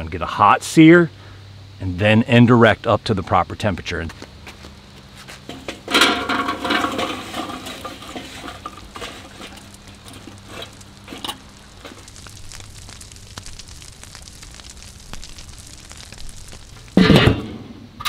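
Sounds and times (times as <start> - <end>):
hot coals crackling and hissing: 0.0 - 18.0
charcoal rattling from metal starter: 5.4 - 17.6.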